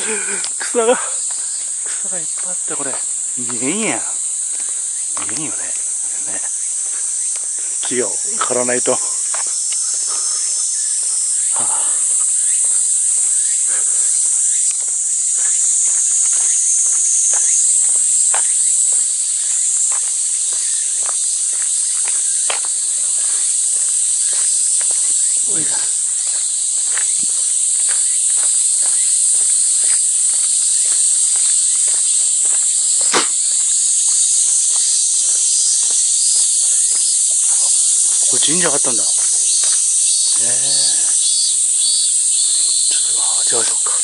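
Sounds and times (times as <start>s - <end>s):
cicadas chorus: 0.0s - 44.0s
faint footsteps: 0.0s - 44.0s
sharp click: 33.1s - 33.4s.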